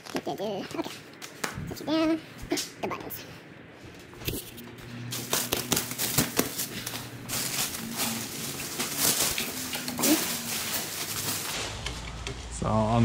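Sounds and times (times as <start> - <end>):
plastic wrap crinkling: 5.1 - 11.8.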